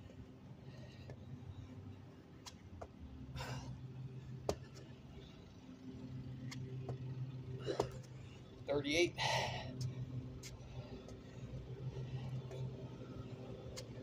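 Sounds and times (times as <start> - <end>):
steady low hum: 0.0 - 14.0
man breathing out heavily: 3.4 - 4.4, 9.2 - 12.8.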